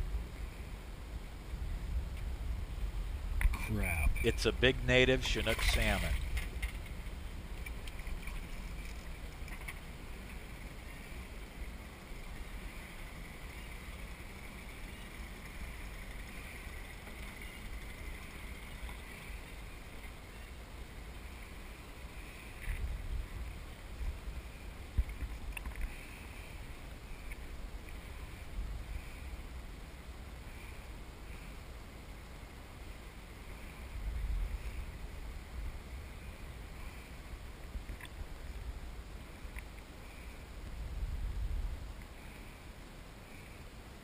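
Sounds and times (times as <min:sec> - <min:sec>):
wind on microphone: 0:22.6 - 0:26.8, 0:40.7 - 0:42.4.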